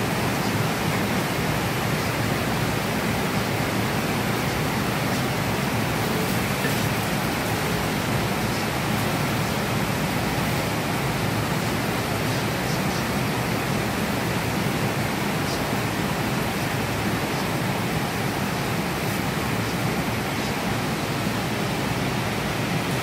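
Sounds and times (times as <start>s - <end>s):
heavy rain falling: 0.0s - 23.0s.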